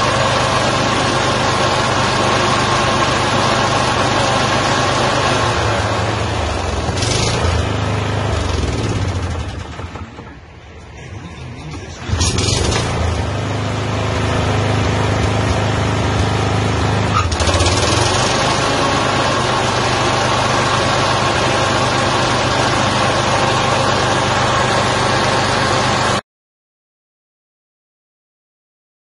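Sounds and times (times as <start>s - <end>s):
mower engine running: 0.0s - 26.2s.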